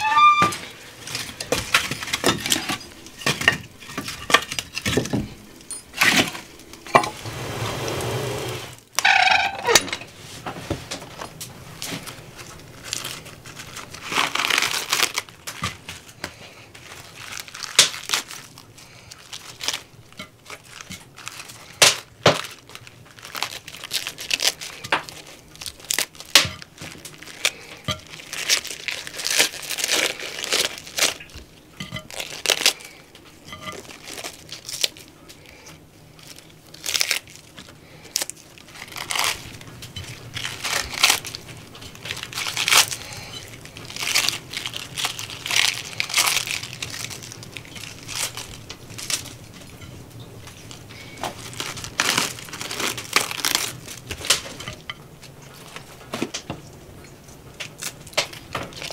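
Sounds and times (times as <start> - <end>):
lettuce leaves tearing: 11.8 - 31.4, 32.0 - 33.0, 33.6 - 35.6, 36.2 - 49.8, 50.4 - 54.8, 57.2 - 58.9.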